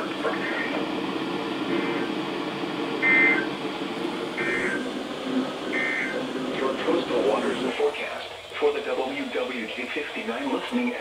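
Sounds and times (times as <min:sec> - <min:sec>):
radio static hiss: 0:00.0 - 0:11.0
short electronic beeps: 0:03.0 - 0:03.5, 0:04.4 - 0:04.8, 0:05.8 - 0:06.2.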